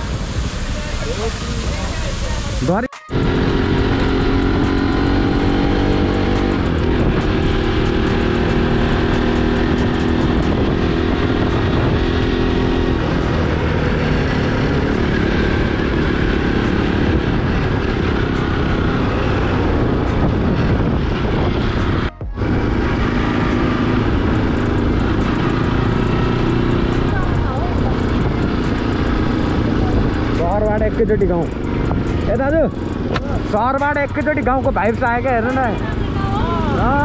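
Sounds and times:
motorcycle engine droning: 0.0s - 37.0s
rushing noise: 0.0s - 37.0s.

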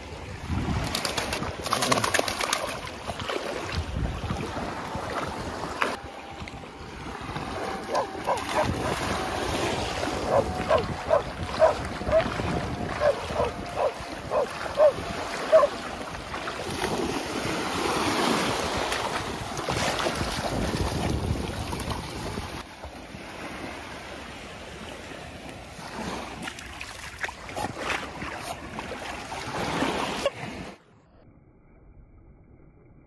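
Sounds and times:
surf washing and splashing: 0.0s - 30.8s
wind buffeting microphone: 2.8s - 23.6s.

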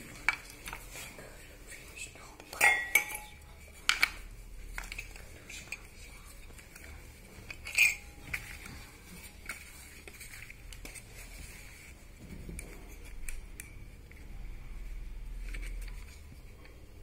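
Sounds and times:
hard objects knocking and clinking: 2.5s - 5.8s.

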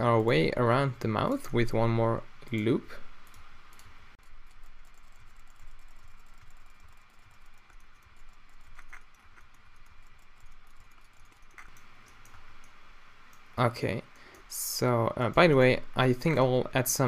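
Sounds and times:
faint low hum: 0.0s - 17.0s
keyboard and mouse clicking: 2.4s - 13.5s.

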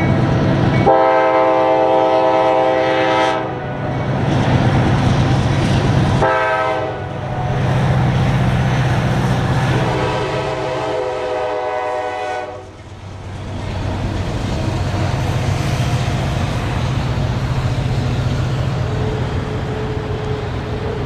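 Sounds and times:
freight train rumbling past: 0.0s - 21.0s
train horn chord: 0.8s - 3.7s, 6.2s - 7.2s, 9.7s - 12.8s.

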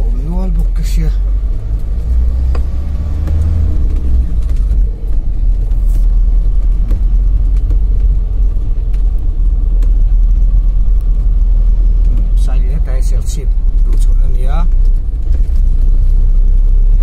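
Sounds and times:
car engine and road rumble: 0.0s - 17.0s
deeper engine hum: 0.0s - 17.0s.

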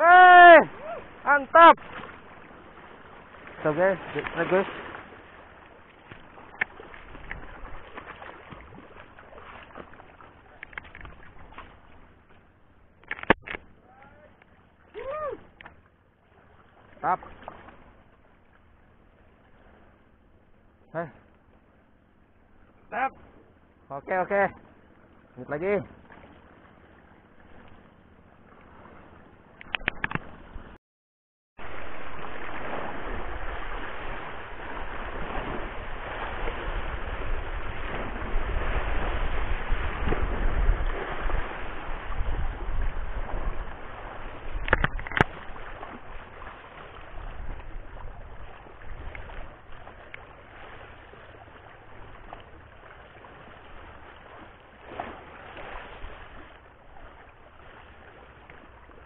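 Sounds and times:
sharp click: 13.0s - 13.7s, 29.6s - 30.3s, 44.6s - 45.4s
sea water washing over rocks: 31.6s - 58.7s.

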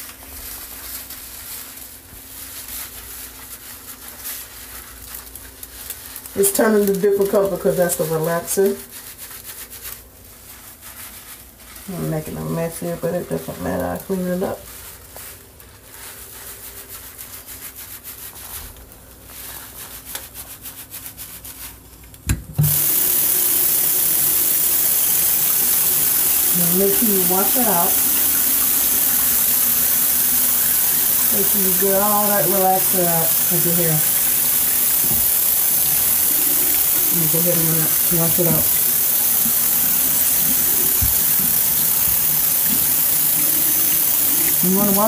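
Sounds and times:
tap water running: 0.0s - 9.1s, 11.8s - 15.3s, 22.2s - 45.0s
wet hair rubbing and squishing: 0.0s - 22.0s, 22.7s - 45.0s.

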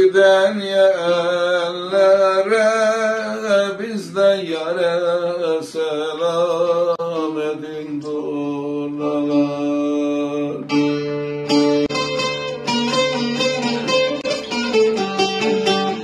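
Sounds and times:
long-necked lute playing: 9.0s - 16.0s.

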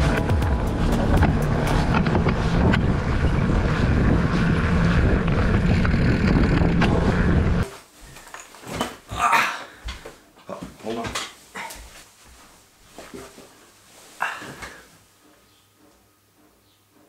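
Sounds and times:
tyre road noise: 0.0s - 7.7s
wind buffeting microphone: 1.2s - 7.6s.

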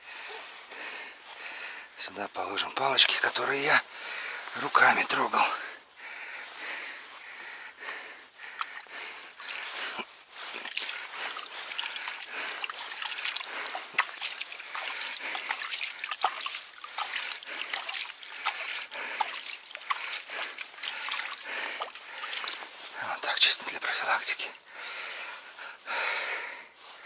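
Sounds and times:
sticks and grass crackling: 0.0s - 26.2s
small splashes and trickles: 8.4s - 23.0s.

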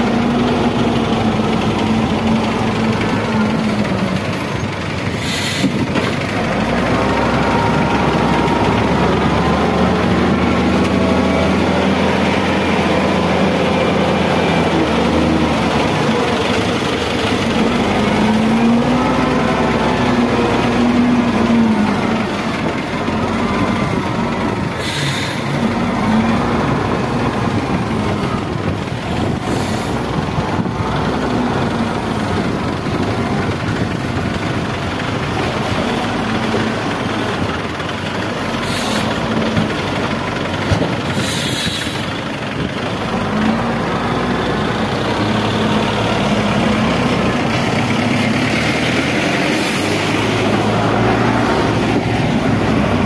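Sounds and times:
diesel engine working under load: 0.0s - 53.0s
short hisses: 5.2s - 5.8s.

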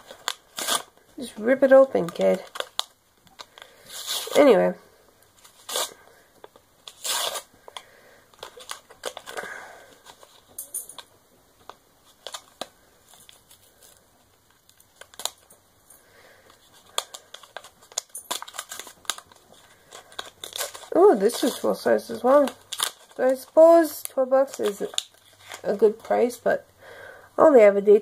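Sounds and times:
packaging tearing and crinkling: 0.0s - 1.0s, 2.0s - 4.4s, 5.4s - 7.6s, 8.4s - 10.5s, 12.0s - 15.5s, 16.5s - 25.8s.

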